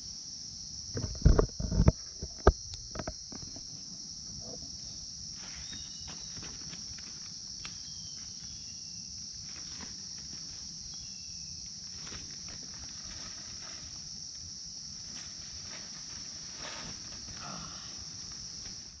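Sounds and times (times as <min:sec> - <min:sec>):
high-pitched insect chorus: 0:00.0 - 0:19.0
footsteps rustling through dry leaves: 0:11.9 - 0:17.3.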